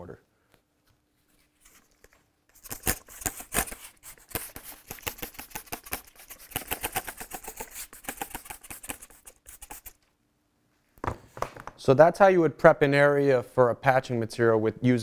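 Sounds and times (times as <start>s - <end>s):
spray bottle squirting water: 3.0s - 10.0s.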